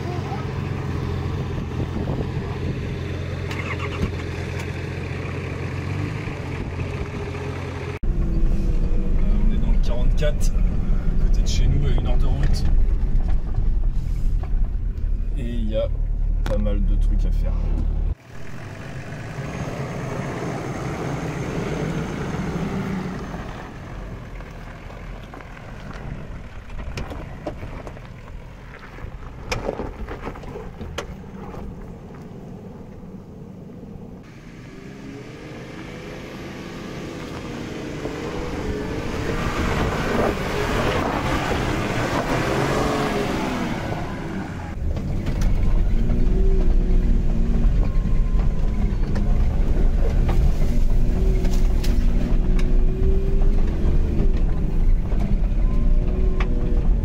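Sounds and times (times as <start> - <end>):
heavy low rumble: 0.0 - 3.3, 8.0 - 21.2, 38.0 - 57.0
off-road vehicle engine running: 0.0 - 57.0.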